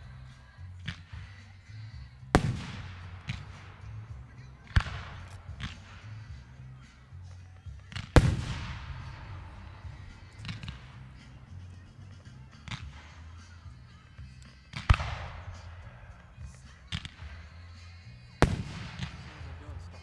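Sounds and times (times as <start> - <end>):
smaller firework bangs: 2.3 - 7.0, 7.8 - 13.4, 14.6 - 17.5, 18.4 - 19.9
firework booms echoing: 2.4 - 6.5, 7.9 - 11.2, 18.4 - 19.8.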